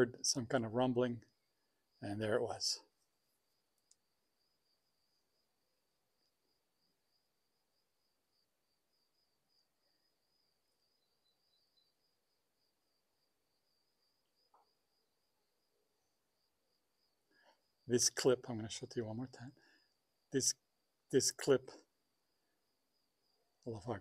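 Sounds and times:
faint high-pitched pulsing tone: 4.5s - 17.6s.

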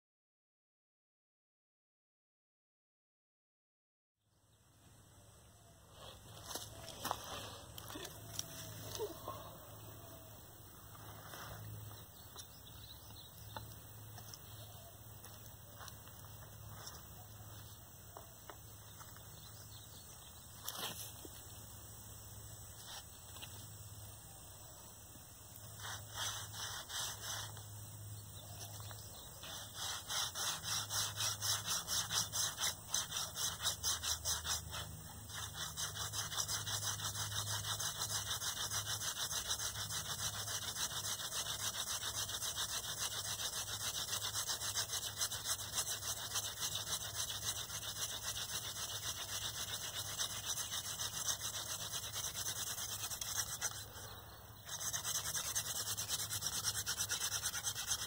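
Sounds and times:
wooden spindle rubbing on board: 25.8s - 27.6s, 29.4s - 53.9s, 54.6s - 58.0s.

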